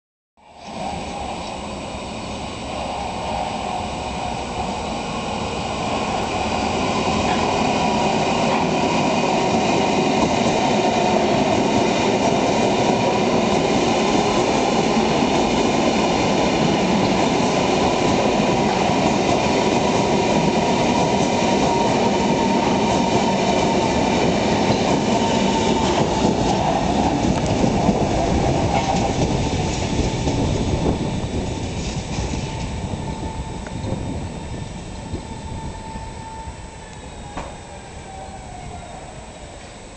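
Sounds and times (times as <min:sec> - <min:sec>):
train wheels rolling on rail: 0:00.6 - 0:39.9
thin high whine: 0:28.7 - 0:39.9.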